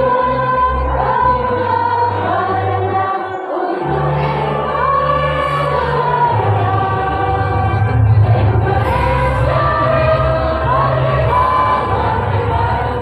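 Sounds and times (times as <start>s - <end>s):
women's choir singing: 0.0s - 13.0s
low bass line: 5.7s - 13.0s.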